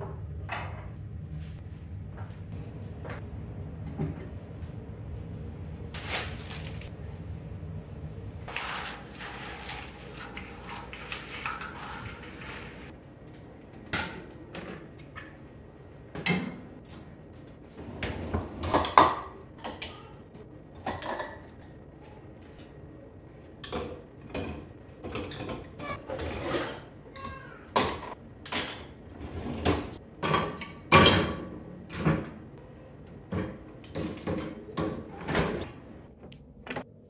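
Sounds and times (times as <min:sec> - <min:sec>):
broom sweeping tile floor: 0:08.4 - 0:12.9
dishes clattering in dishwasher rack: 0:18.0 - 0:20.0, 0:27.8 - 0:32.4.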